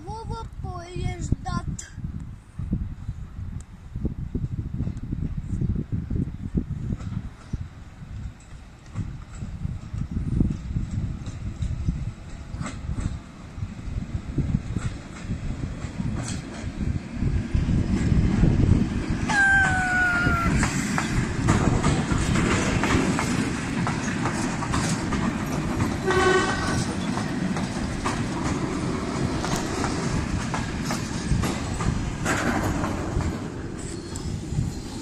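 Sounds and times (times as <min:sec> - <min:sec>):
train wheels rumbling on tracks: 0:02.5 - 0:35.0
train horn: 0:26.0 - 0:26.9.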